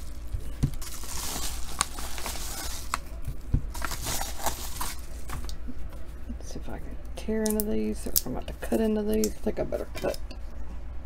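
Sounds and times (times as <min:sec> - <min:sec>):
paper mailer crinkling: 0:00.0 - 0:05.5.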